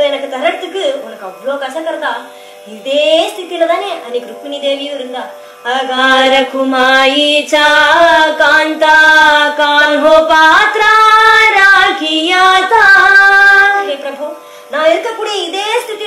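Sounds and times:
woman singing devotional song: 0.0 - 16.0.

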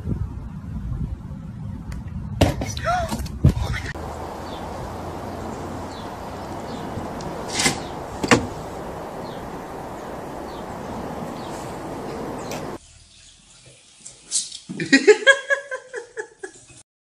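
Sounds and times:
steady background noise: 4.0 - 12.8
sharp knocks: 5.1 - 9.5.

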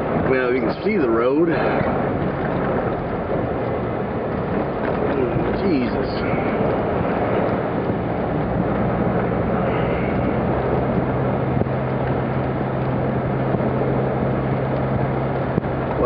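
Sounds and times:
blizzard wind rushing: 0.0 - 16.0
engine low hum: 0.0 - 16.0.

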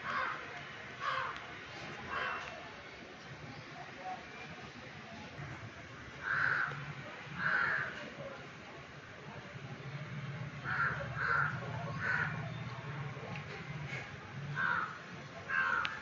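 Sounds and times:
bird cawing: 6.2 - 6.7, 10.6 - 12.4, 14.6 - 16.0.

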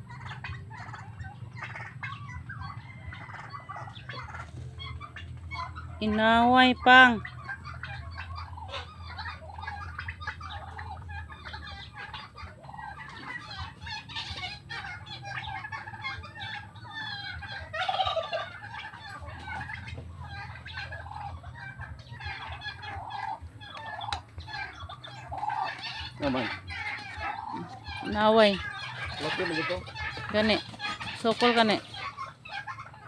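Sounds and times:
turkeys clucking and chattering: 0.0 - 33.0.

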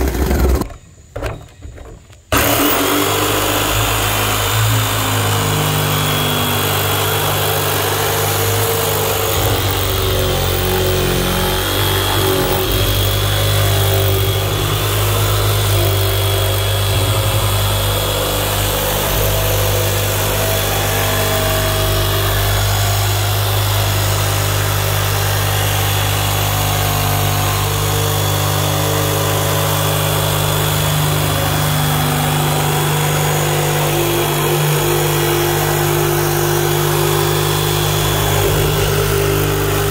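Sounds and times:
jigsaw sawing through plastic: 2.3 - 39.9.

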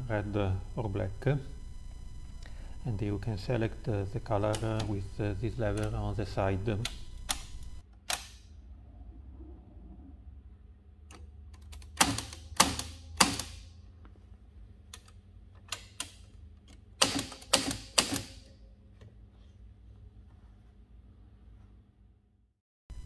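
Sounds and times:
typewriter lever clicks: 6.8 - 8.4, 11.1 - 13.6, 15.0 - 18.5
typewriter typebar strikes: 11.8 - 13.7, 17.0 - 18.5.

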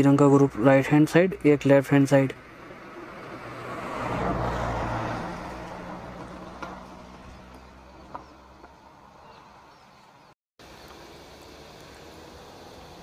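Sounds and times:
vehicle passing: 2.2 - 10.2.

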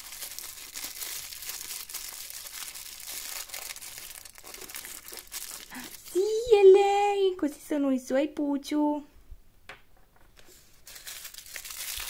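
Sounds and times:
plastic wrapper crinkling: 0.0 - 6.3, 10.4 - 12.0.

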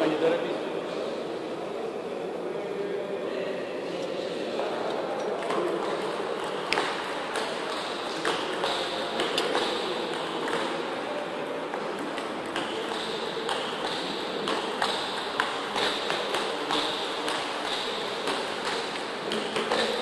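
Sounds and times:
steady room hum: 0.0 - 20.0
ping pong ball clicking: 5.4 - 10.8, 11.8 - 20.0.

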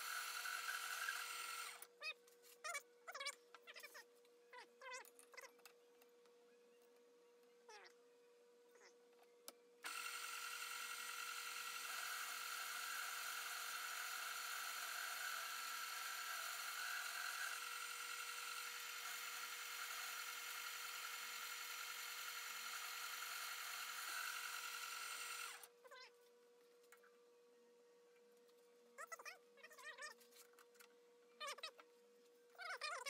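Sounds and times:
metal lathe whining: 9.8 - 25.7.

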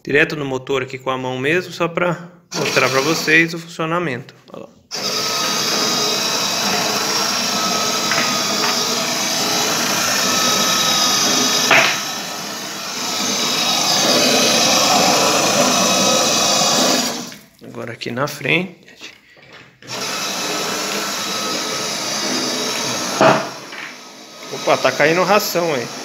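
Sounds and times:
motor and belt whirring: 4.9 - 17.4, 19.8 - 26.0.

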